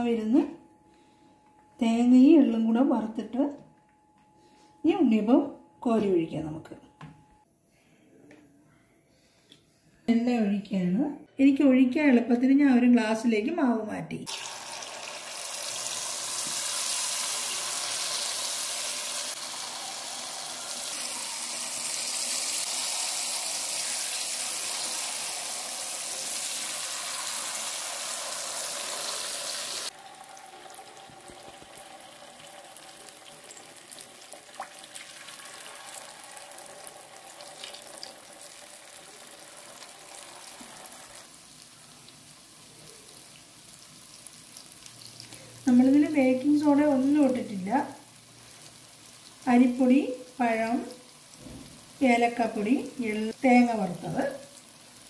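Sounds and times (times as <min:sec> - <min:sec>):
batter sizzling in hot oil: 0:14.3 - 0:55.0.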